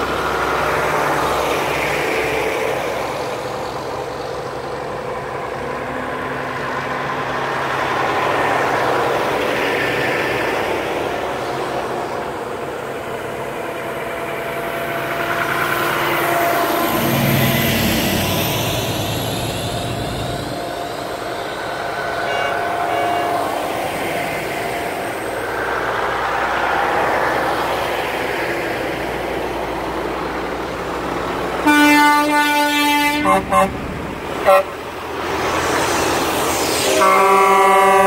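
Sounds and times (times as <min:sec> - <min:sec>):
diesel trucks passing: 0:00.0 - 0:38.0
truck horn blasts: 0:22.2 - 0:23.5, 0:31.6 - 0:34.9, 0:36.9 - 0:38.0.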